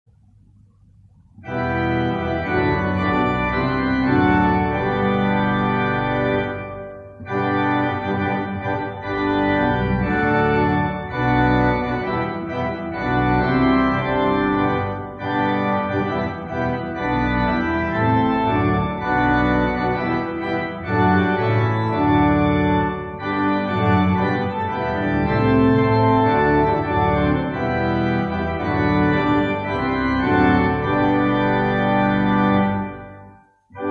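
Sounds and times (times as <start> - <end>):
organ playing a hymn: 1.4 - 33.9.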